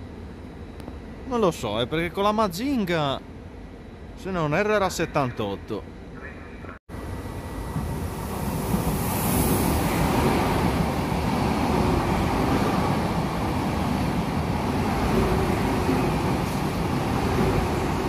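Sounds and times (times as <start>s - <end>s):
rushing air: 7.5s - 18.0s
train wheels rumbling on rails: 7.5s - 18.0s.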